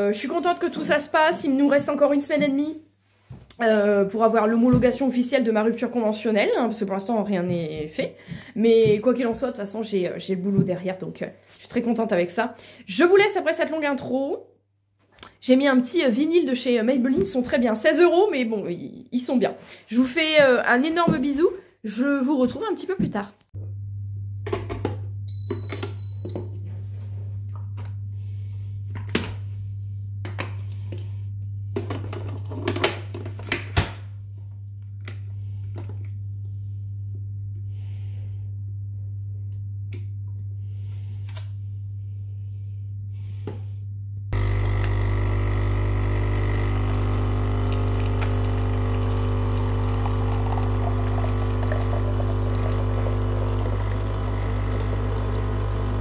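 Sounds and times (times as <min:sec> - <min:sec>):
pump buzzing hum: 0:23.6 - 0:38.1, 0:44.3 - 0:56.0.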